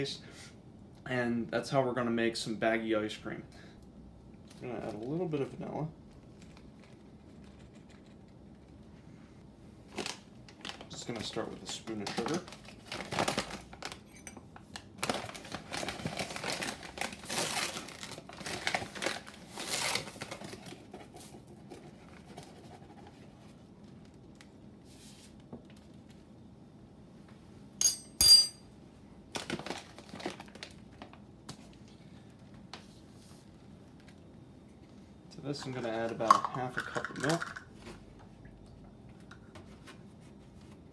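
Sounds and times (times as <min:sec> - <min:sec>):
plastic bag crinkling: 0:14.8 - 0:20.7, 0:29.3 - 0:31.2.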